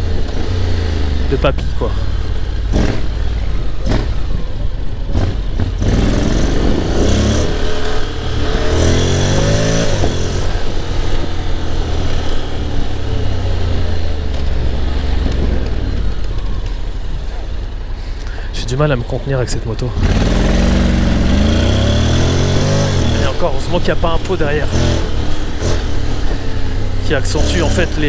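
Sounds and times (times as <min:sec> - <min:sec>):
motorcycle engine accelerating: 0:00.0 - 0:17.9, 0:18.8 - 0:28.0
wind rushing over microphone: 0:02.7 - 0:17.6.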